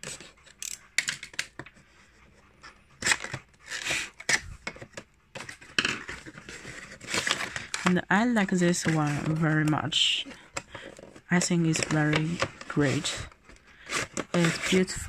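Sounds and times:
box cutter slicing tape and cardboard: 3.0s - 4.6s, 11.8s - 15.0s
cardboard flaps scraping and rustling: 3.0s - 7.9s, 10.9s - 15.0s.

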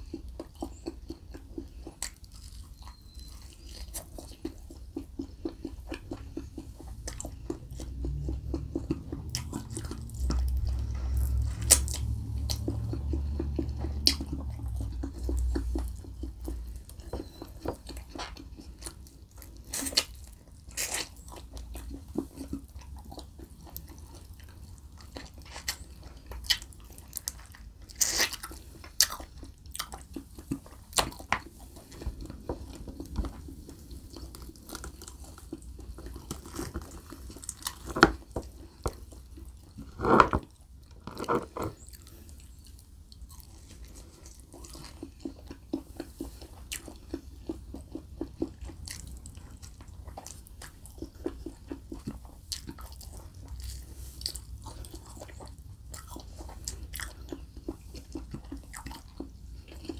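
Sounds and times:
chewing and biting ribs: 0.0s - 59.9s.

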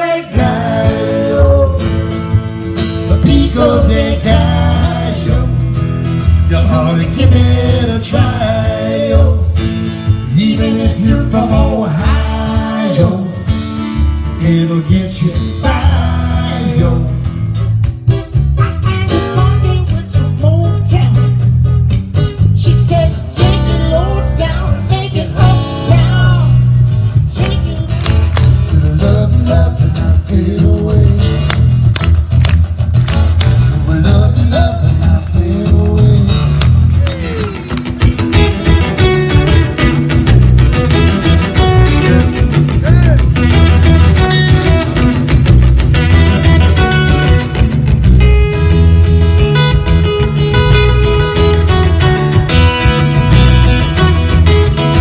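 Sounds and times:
man singing: 0.0s - 2.2s, 3.0s - 5.7s, 6.3s - 9.6s, 10.2s - 13.5s, 14.2s - 17.4s, 18.6s - 21.4s, 22.4s - 31.6s, 33.7s - 37.8s
strummed acoustic guitar: 0.0s - 55.0s
plucked upright bass: 0.3s - 55.0s.

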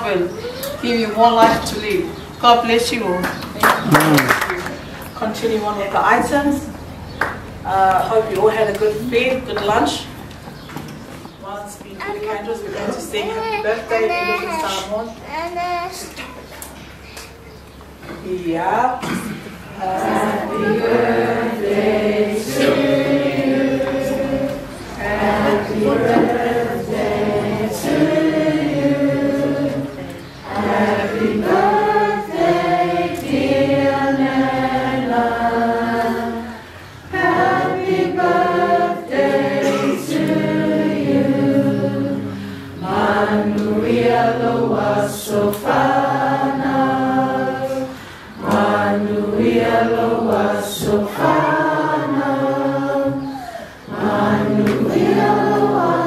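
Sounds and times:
group singing unaccompanied: 18.2s - 56.0s.

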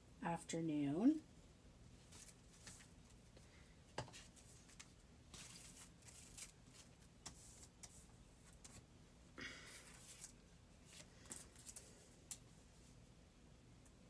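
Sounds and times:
paper rustling on a tabletop: 2.0s - 3.4s, 4.0s - 8.9s, 9.7s - 12.4s.

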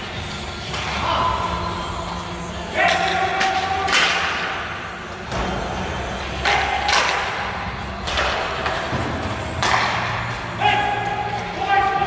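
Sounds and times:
hockey stick and puck knocks: 2.9s - 4.5s.

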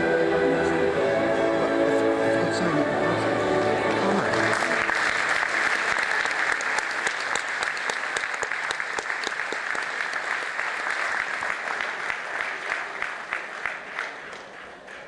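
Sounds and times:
audience applauding: 3.8s - 15.0s.

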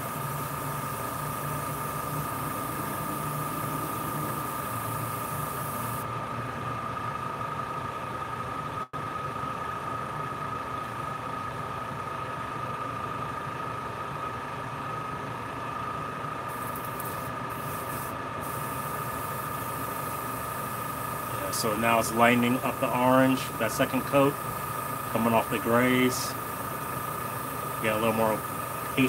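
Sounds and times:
airbrush hissing air: 0.0s - 6.0s, 16.5s - 29.0s
compressor humming: 0.0s - 9.1s, 16.4s - 29.0s.

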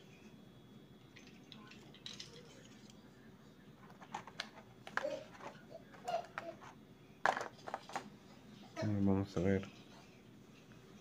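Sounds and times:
plastic clatter: 3.8s - 8.1s.

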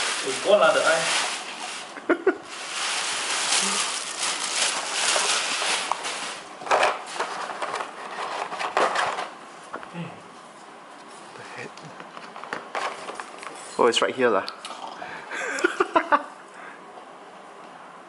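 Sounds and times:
plastic packaging crinkling: 0.0s - 9.3s.

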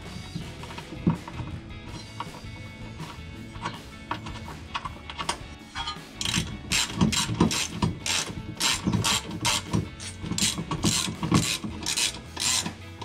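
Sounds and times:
socket ratchet clicking: 6.2s - 12.8s.

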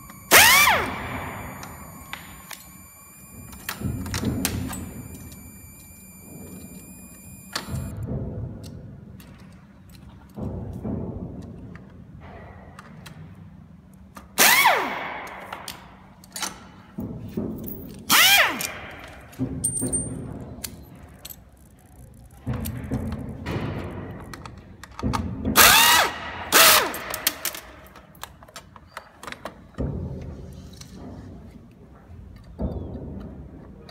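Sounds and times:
electric screwdriver whirring: 0.0s - 7.9s, 18.1s - 18.8s
plastic parts clicking and knocking: 15.5s - 26.0s, 26.8s - 31.0s.

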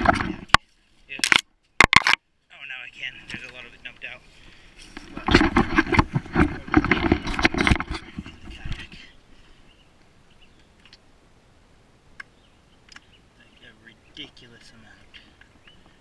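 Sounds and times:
kayak pulled through tall grass: 2.6s - 9.7s.

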